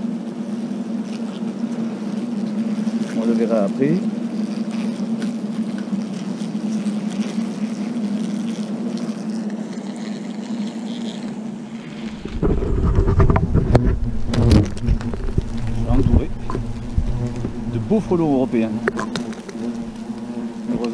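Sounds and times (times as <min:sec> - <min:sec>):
hornets buzzing: 0:00.0 - 0:20.9
camera handling rumble and knocks: 0:11.8 - 0:17.8, 0:18.8 - 0:20.9.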